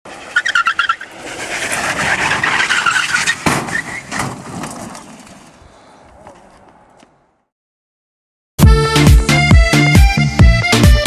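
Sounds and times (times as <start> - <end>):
tyres squealing: 0.1 - 5.3
cart rolling on asphalt: 0.1 - 7.2.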